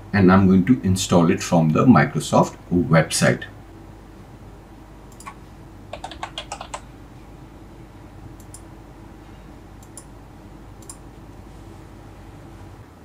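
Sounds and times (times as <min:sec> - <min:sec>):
computer keyboard typing: 0:05.1 - 0:06.9
light clicks: 0:09.8 - 0:10.1, 0:10.8 - 0:11.0.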